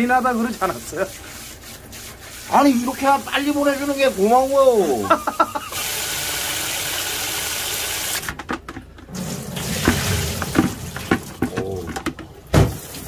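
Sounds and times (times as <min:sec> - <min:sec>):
water pouring in a stream: 0:09.1 - 0:11.8
water sloshing: 0:09.1 - 0:13.0.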